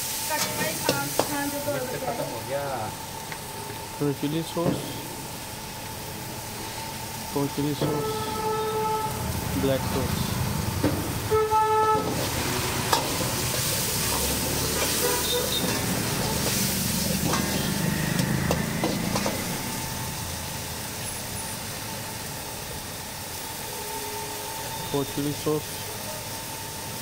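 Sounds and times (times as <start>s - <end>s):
vegetables sizzling in a wok: 0.0s - 27.0s
short horn toot: 7.9s - 9.2s, 11.3s - 12.2s, 15.0s - 15.8s
ladle scraping and clicking on wok: 12.0s - 19.5s.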